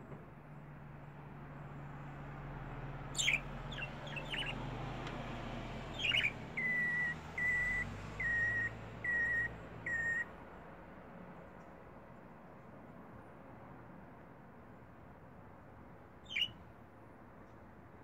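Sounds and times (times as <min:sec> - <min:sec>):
budgerigar chirping and whistling: 0:03.2 - 0:04.6, 0:05.9 - 0:10.3, 0:16.2 - 0:16.6.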